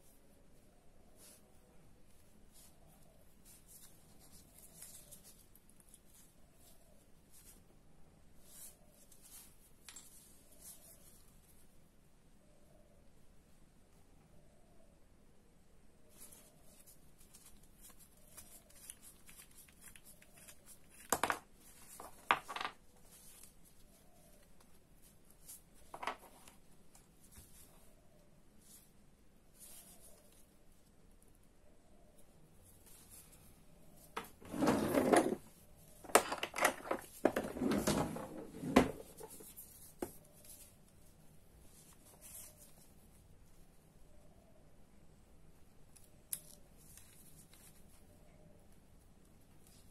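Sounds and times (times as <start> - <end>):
plastic gloves rustling: 0.0 - 11.8, 16.0 - 31.0, 32.6 - 43.8.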